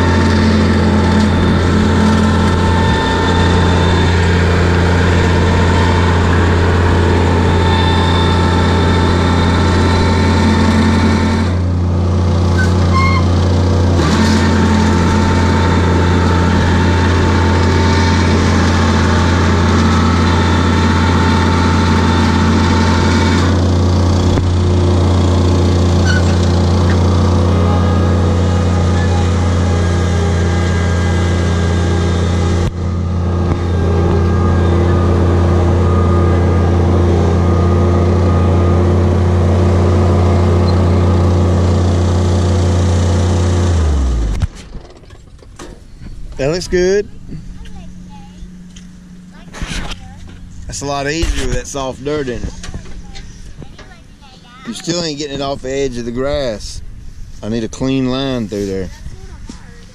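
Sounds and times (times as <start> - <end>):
small engine humming: 0.0 - 59.9.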